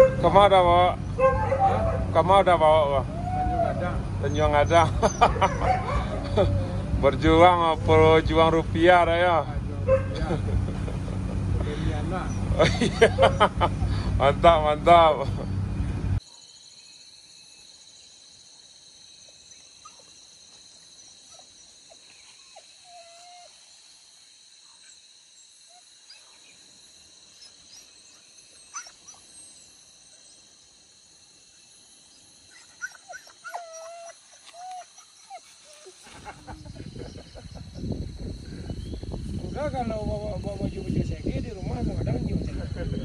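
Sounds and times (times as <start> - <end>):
dogs whining and yelping: 0.0 - 0.3, 1.0 - 2.2, 3.0 - 7.1, 22.3 - 23.6, 27.4 - 29.6, 32.5 - 36.4
low rumble: 0.1 - 16.2.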